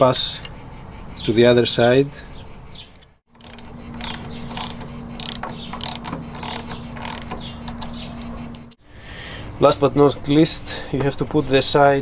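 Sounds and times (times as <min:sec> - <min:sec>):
ratcheting socket wrench clicking: 0:03.4 - 0:07.9.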